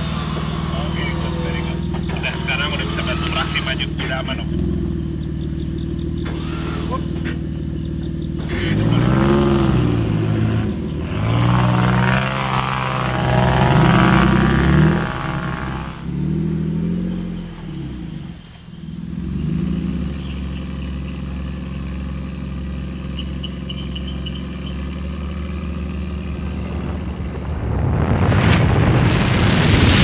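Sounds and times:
off-road vehicle engine revving: 0.0 - 30.0
faint high chirp: 19.7 - 27.5.

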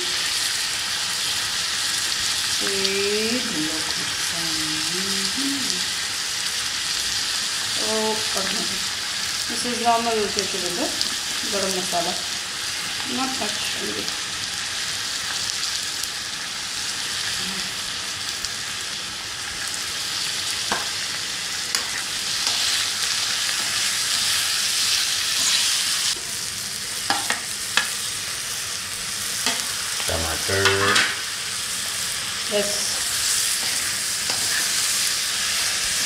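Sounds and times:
food sizzling in a wok: 0.0 - 36.0
metal spoon knocking pan: 27.1 - 27.9.

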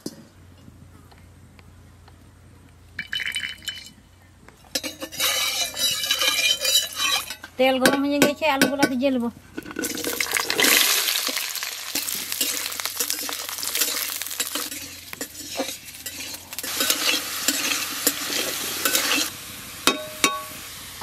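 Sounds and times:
metal spatula scraping a pan: 4.6 - 7.6, 9.6 - 20.5
potatoes sizzling in hot oil: 9.8 - 21.0.

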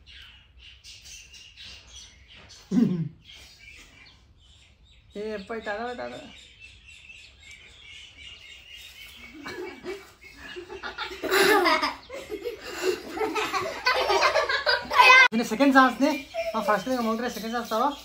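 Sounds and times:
people laughing: 9.2 - 15.3, 15.9 - 17.2.

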